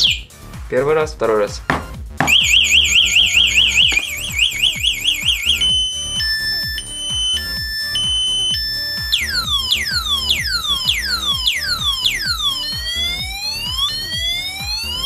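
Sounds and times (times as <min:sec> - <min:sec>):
alarm siren: 0:00.0 - 0:00.3, 0:02.3 - 0:15.0.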